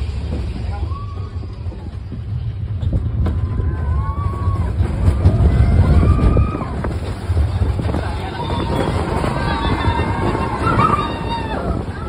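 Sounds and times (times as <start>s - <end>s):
roller coaster rumbling on track: 0.0s - 12.0s
riders yelling: 8.0s - 12.0s.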